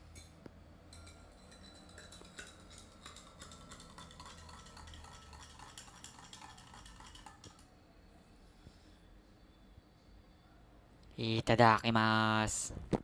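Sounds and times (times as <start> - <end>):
spoon clinking against glass: 0.1 - 7.6.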